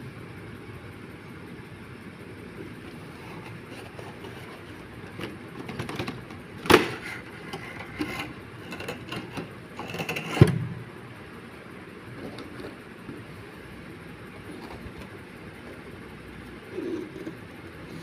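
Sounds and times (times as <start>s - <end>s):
plastic case rustling and scraping: 2.9s - 10.6s, 14.4s - 15.8s.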